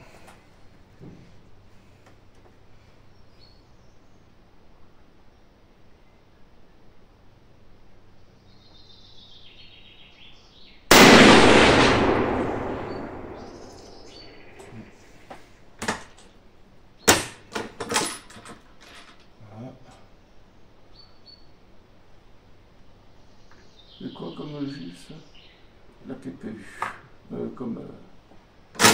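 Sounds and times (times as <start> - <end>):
rifle shot with echo: 10.9 - 14.8.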